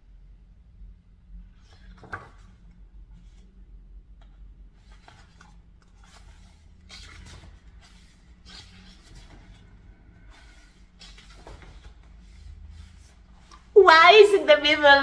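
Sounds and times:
book pages turning: 1.6 - 3.4, 4.2 - 13.8.

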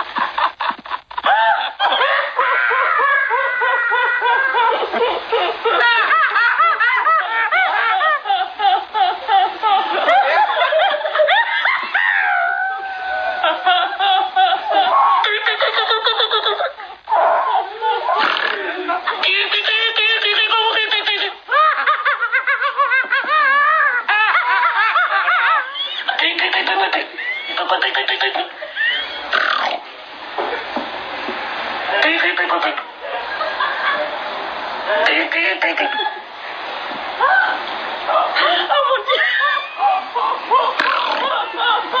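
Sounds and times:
woman laughing hard: 0.0 - 29.2, 37.2 - 42.0
woman giggling: 17.6 - 29.1.

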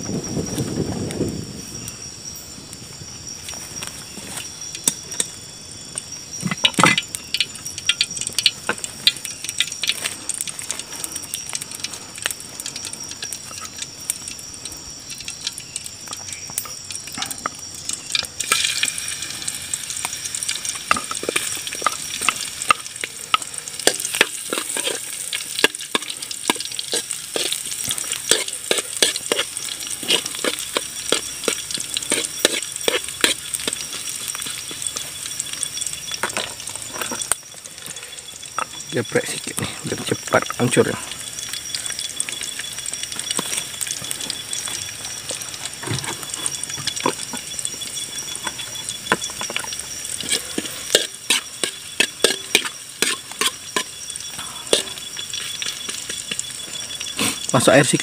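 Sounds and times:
oil sizzling in a wok: 0.0 - 58.0
ladle scraping and clinking on wok: 18.4 - 35.0, 48.3 - 56.4.

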